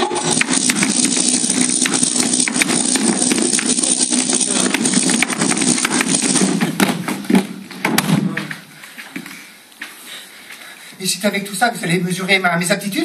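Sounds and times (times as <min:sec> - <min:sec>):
electrical crackling and buzzing: 0:00.0 - 0:07.4.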